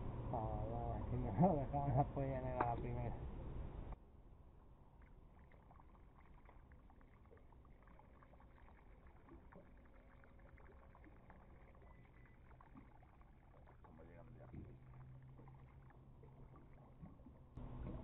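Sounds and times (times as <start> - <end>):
water lapping against boat hull: 4.8 - 18.0.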